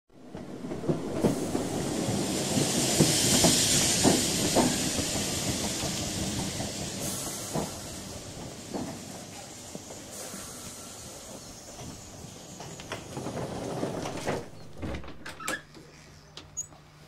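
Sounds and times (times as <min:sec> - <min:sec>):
steam hissing: 0:01.2 - 0:12.7.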